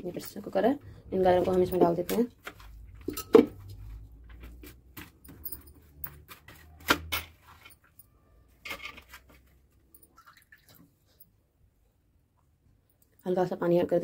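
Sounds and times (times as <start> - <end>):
kitchen handling noise: 3.0 - 3.8.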